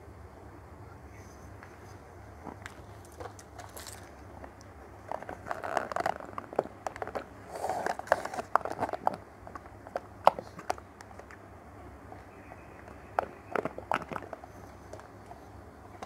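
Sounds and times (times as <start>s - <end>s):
sipping through a straw: 7.4s - 8.5s.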